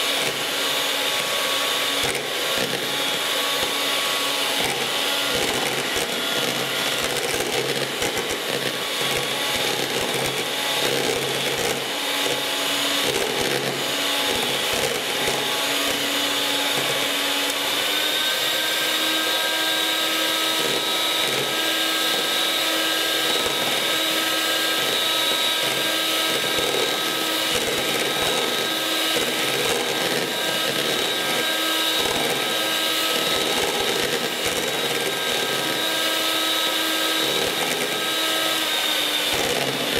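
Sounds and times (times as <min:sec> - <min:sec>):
beaters whipping cream: 0:00.0 - 0:39.9
electric hand mixer motor whine: 0:00.0 - 0:39.9.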